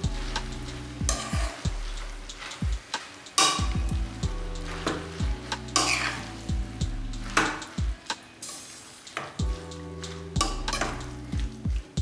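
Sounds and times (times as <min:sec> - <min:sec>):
background music with bass: 0:00.0 - 0:03.0, 0:03.6 - 0:08.2, 0:09.4 - 0:12.0
metal spoon scraping a pan: 0:00.0 - 0:03.7, 0:04.5 - 0:06.4, 0:08.4 - 0:11.2
greens sizzling in a pan: 0:00.0 - 0:12.0.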